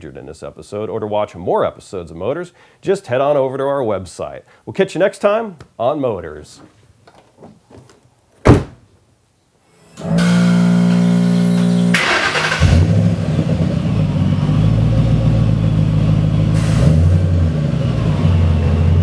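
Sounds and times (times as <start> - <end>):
starter motor whine: 9.8 - 13.2.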